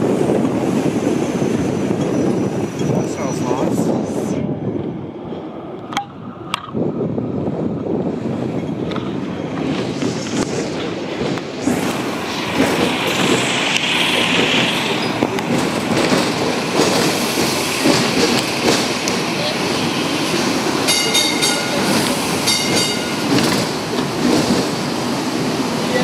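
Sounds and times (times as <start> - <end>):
tram rumbling on rails: 0.0 - 26.0.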